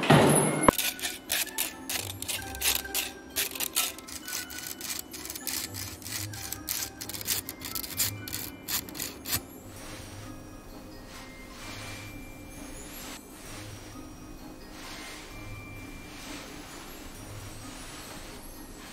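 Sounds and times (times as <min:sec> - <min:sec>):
soft background music: 0:00.0 - 0:18.9
wire strainer rasping strokes: 0:00.7 - 0:09.4.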